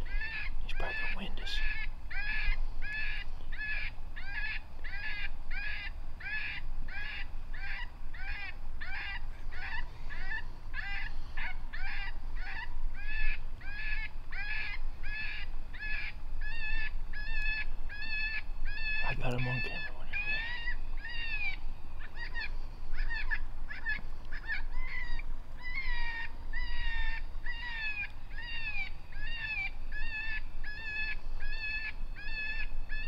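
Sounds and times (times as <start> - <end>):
predator call squealing: 18.0 - 21.6.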